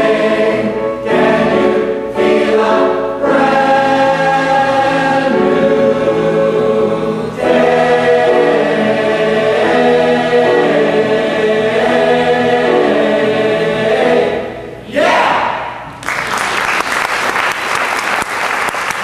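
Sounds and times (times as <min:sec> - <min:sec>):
choir holding a chord: 0:00.0 - 0:15.5
audience applause: 0:16.0 - 0:19.0.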